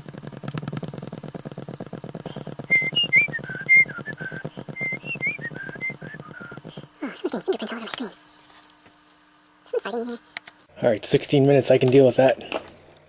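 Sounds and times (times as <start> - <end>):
fast even clicking: 0.0 - 7.0
person whistling a tune: 2.7 - 6.6.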